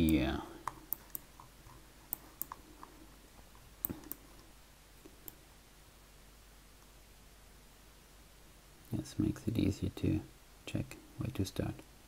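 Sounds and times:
computer mouse clicking: 0.0s - 3.0s, 3.6s - 4.5s
room hiss: 0.0s - 12.0s.

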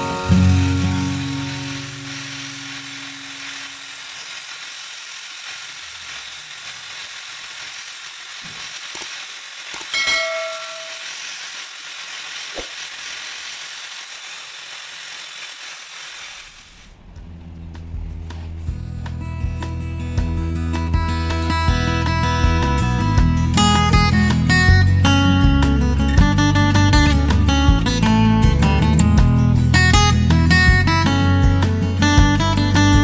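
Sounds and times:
angle grinder grinding metal: 0.0s - 16.9s.

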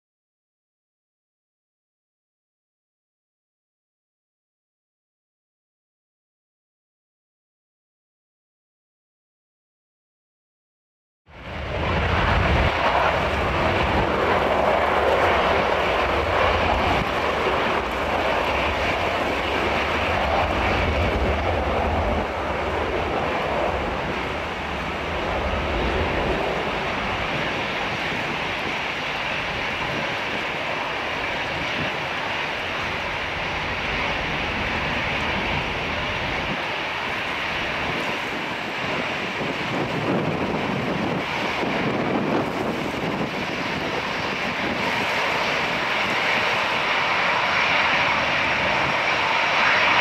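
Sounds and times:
jet engines whining while taxiing: 11.4s - 50.0s.

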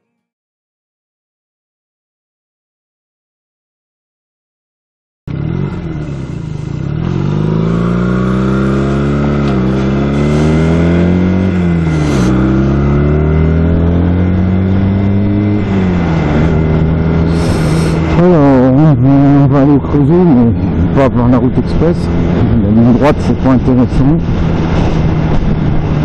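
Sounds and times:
motorcycle engine accelerating: 5.3s - 26.0s.

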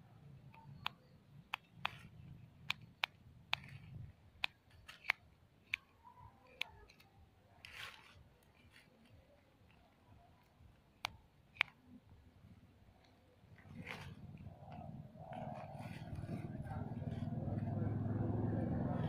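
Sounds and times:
dry leaves crackling: 7.6s - 8.9s
leaves rustling: 7.6s - 9.1s.

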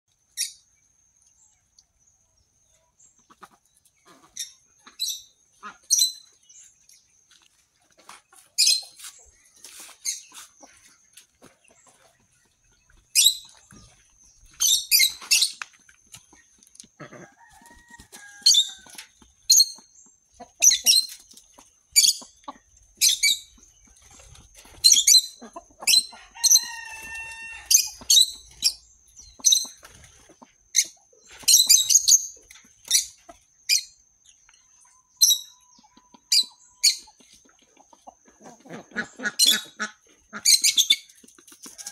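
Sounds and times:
high-pitched bird chirps: 14.4s - 15.6s, 34.6s - 37.2s.

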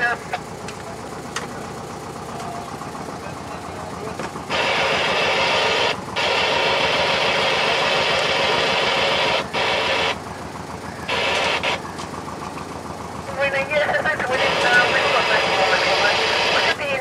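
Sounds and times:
boat engine idling: 0.0s - 17.0s
loud hiss: 4.5s - 10.2s.

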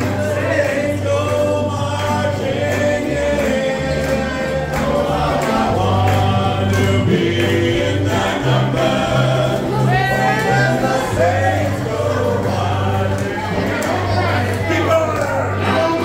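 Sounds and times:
live band with banjo and guitars: 0.0s - 16.0s
voices singing together: 0.0s - 16.0s.

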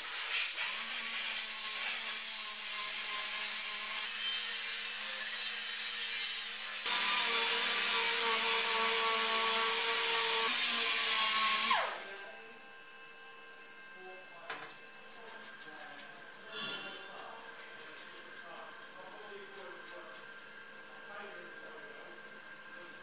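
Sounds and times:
rotary grinder whining and grinding: 1.4s - 13.1s.

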